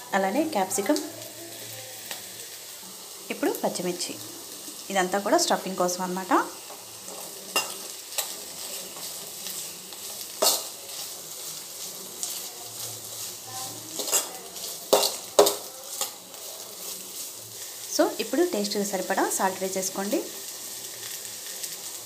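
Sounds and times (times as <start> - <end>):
vegetables sizzling in oil: 0.0 - 22.0
spatula scraping and knocking pan: 13.9 - 16.2.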